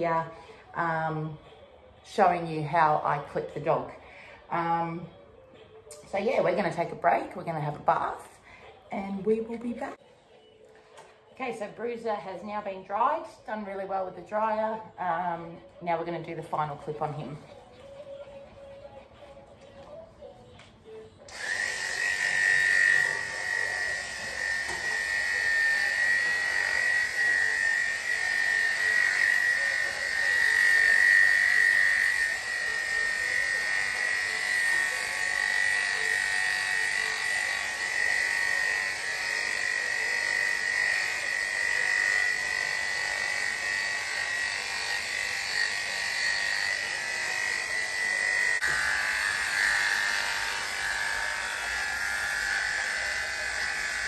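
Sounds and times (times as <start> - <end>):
electric clippers buzzing: 21.3 - 54.0.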